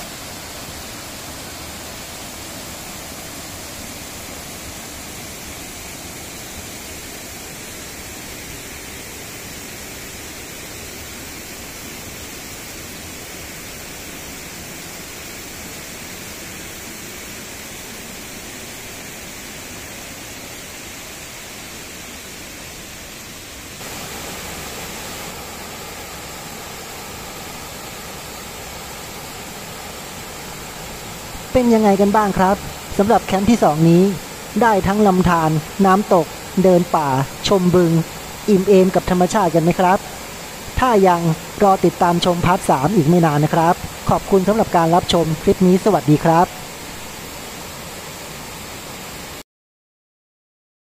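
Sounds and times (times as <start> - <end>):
waterfall rushing: 0.0 - 49.4.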